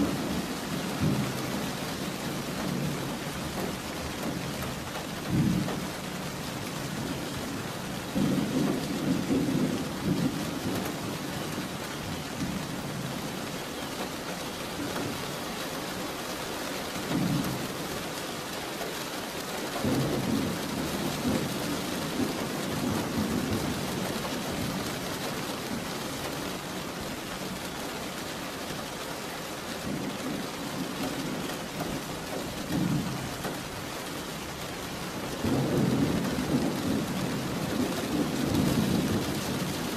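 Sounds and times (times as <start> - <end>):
thunder rumbling: 0.0 - 13.2, 19.8 - 26.1, 35.2 - 39.9
steady rain: 0.0 - 39.9.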